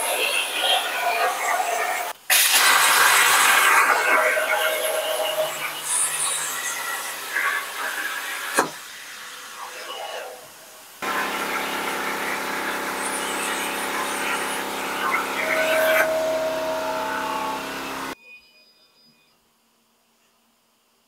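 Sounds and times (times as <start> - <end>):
plasma torch hissing: 2.3 - 18.2.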